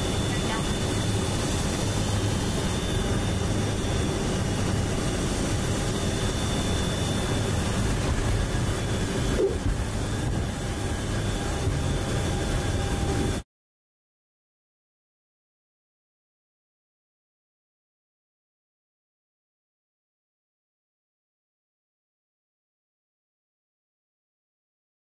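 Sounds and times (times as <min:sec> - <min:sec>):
turboprop engines droning: 0:00.0 - 0:13.4.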